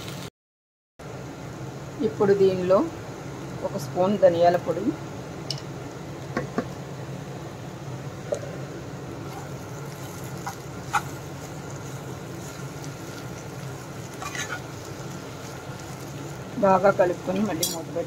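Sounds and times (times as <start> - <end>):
spatula stirring vegetables in pan: 9.2 - 18.0.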